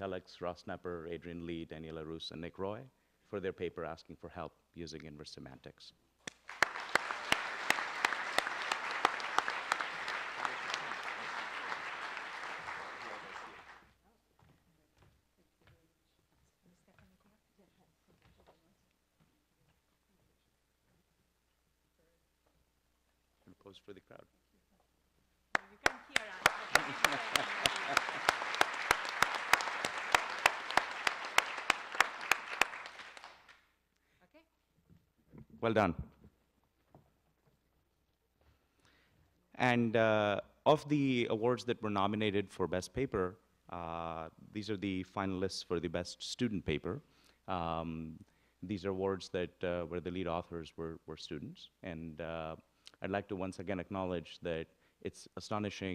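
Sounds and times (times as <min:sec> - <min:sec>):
sharp close claps: 0:06.2 - 0:13.8, 0:25.5 - 0:33.6
audience applauding: 0:06.3 - 0:13.8, 0:25.6 - 0:33.6.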